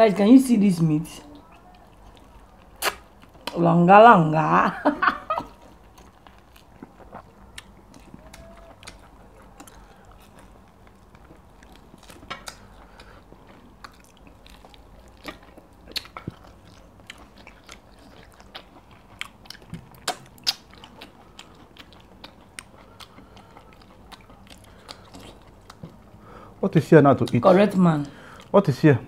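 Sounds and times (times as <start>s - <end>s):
chewing and mouth smacks: 1.2s - 3.6s, 5.4s - 26.3s.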